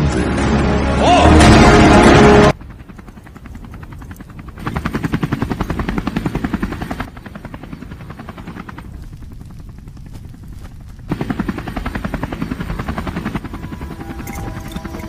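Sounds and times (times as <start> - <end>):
loud soundtrack hit: 0.3 - 2.5.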